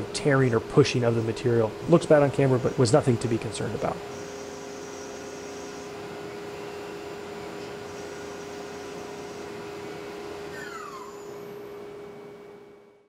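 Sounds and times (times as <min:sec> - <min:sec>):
milling machine spindle tone: 0:04.1 - 0:12.4.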